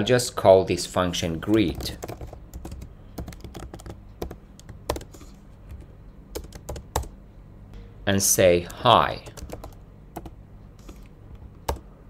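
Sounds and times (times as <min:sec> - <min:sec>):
computer keyboard typing: 0:01.4 - 0:07.1, 0:08.6 - 0:11.9.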